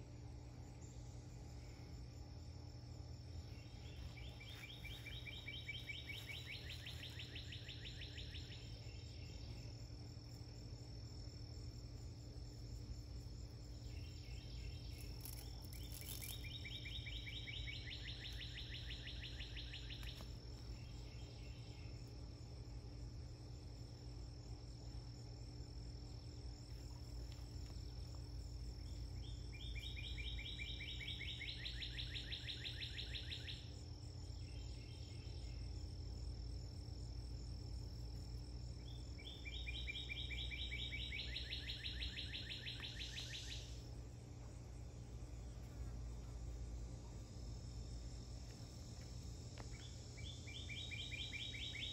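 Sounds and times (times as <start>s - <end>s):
high insect hum: 0.0s - 51.9s
rapid pulsed insect trill: 0.0s - 51.9s.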